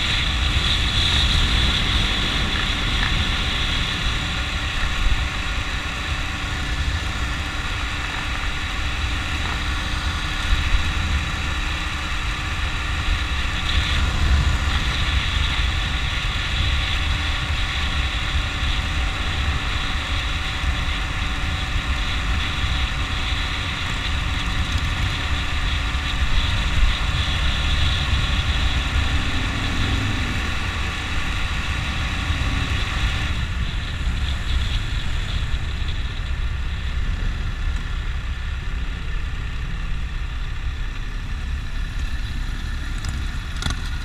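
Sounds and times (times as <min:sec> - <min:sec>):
motorcycle engine rumble: 0:00.0 - 0:44.0
wind noise on microphone: 0:00.0 - 0:44.0.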